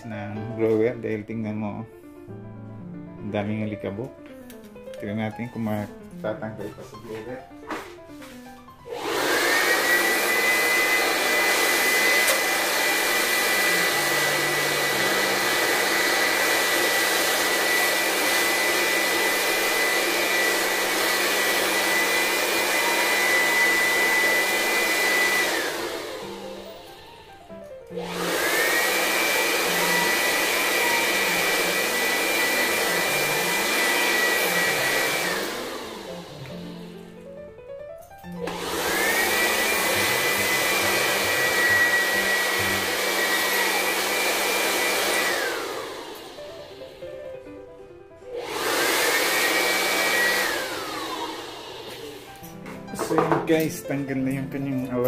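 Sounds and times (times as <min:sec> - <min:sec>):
electric blower whining: 0:08.9 - 0:37.3, 0:38.2 - 0:47.2, 0:48.2 - 0:53.2.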